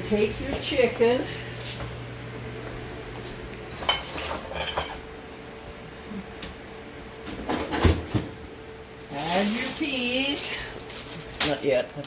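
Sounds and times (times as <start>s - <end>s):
dishes and cutlery clinking: 3.8s - 5.0s.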